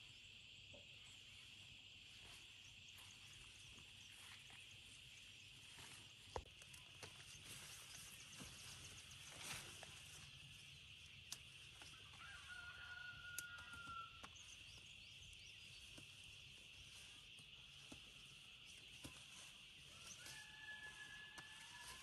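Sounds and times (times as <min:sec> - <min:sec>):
soft clicks from plants: 0:06.3 - 0:07.5, 0:11.0 - 0:14.8
faint rooster crowing: 0:11.8 - 0:15.0, 0:19.7 - 0:22.0.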